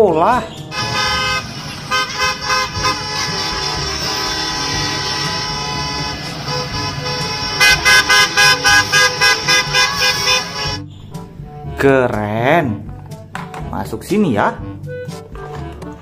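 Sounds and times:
bus engines rumbling: 0.0s - 11.8s
bus horns honking: 0.7s - 11.0s.

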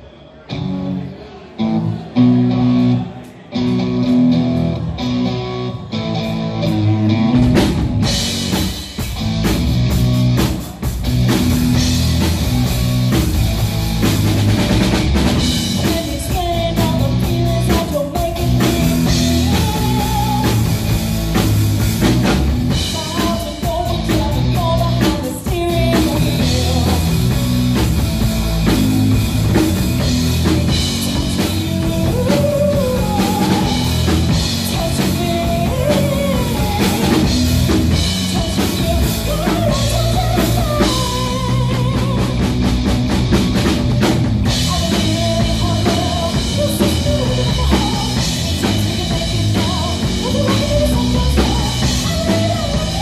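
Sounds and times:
electric guitar chords: 0.5s - 53.0s
drum kit: 2.6s - 53.0s
woman singing: 15.5s - 20.8s, 22.7s - 27.4s, 30.6s - 42.6s, 44.5s - 53.0s.

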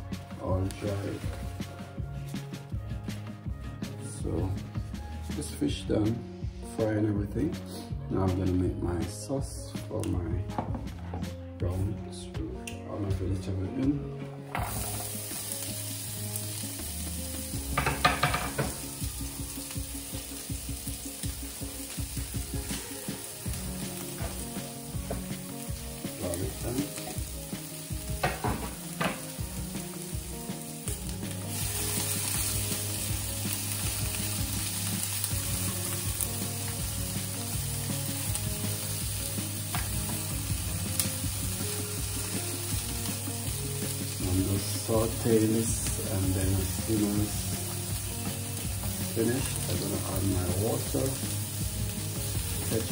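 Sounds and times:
vegetables sizzling in oil: 14.5s - 52.9s.

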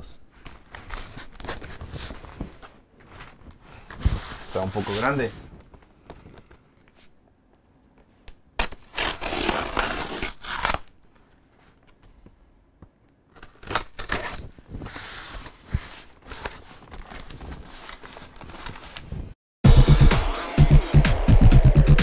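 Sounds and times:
packing tape being torn open: 8.6s - 11.0s, 13.3s - 14.5s.

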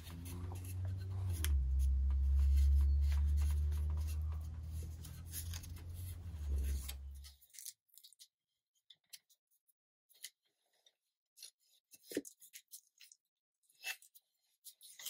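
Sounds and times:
low hum: 0.0s - 7.3s
paper and tape rustling: 0.0s - 8.3s.

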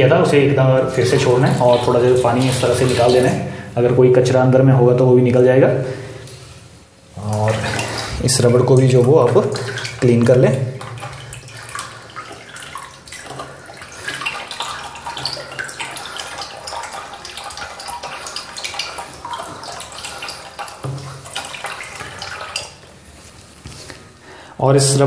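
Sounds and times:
water splashing in toilet cistern: 0.7s - 3.9s, 7.2s - 23.1s.

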